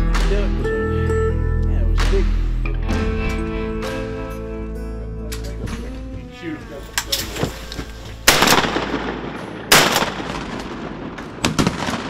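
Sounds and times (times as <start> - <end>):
loud shotgun shots: 8.3 - 12.0.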